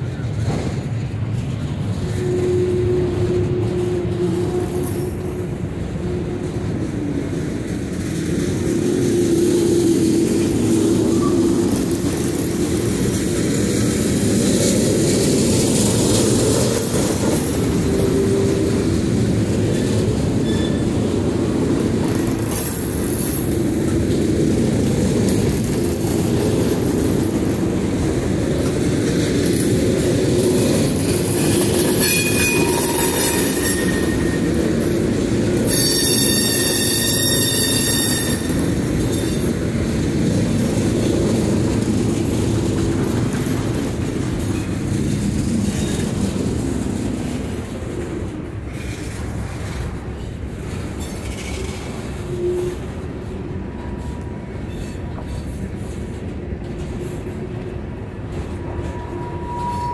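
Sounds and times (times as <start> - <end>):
freight train rolling past: 0.0 - 59.9
rumble of wheels on rail: 0.0 - 59.9
high wheel squeals: 19.7 - 21.0, 31.4 - 34.8, 35.6 - 39.6, 58.7 - 59.9.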